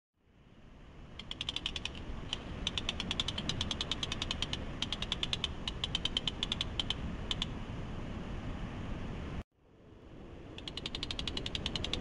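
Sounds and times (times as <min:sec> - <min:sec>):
low steady rumble: 0:00.2 - 0:12.0
rapid sharp clicks: 0:01.2 - 0:07.5, 0:10.5 - 0:12.0.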